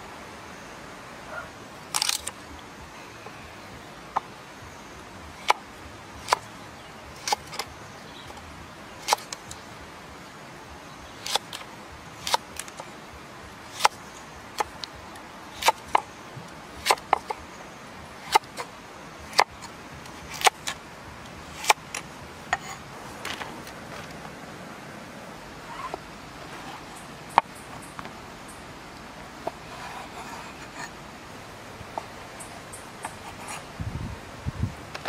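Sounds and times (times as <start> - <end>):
knife slicing carrot: 20.2 - 20.8.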